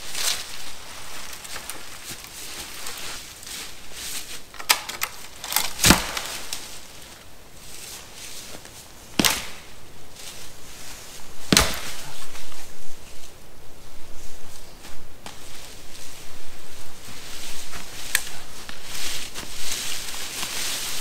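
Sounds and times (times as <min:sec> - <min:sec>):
dead wood cracking: 0:00.2 - 0:03.5, 0:04.4 - 0:07.2, 0:09.2 - 0:09.8, 0:11.5 - 0:12.2.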